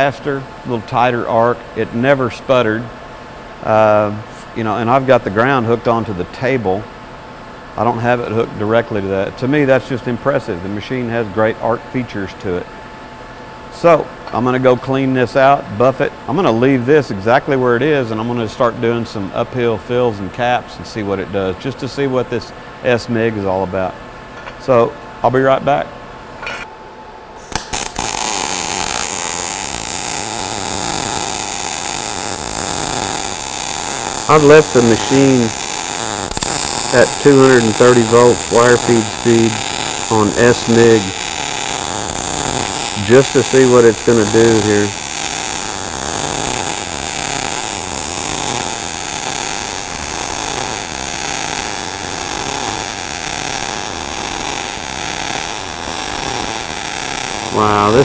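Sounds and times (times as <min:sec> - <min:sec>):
arc striking cracks: 0:27.4 - 0:28.2
welding arc crackling hiss: 0:27.4 - 0:58.0.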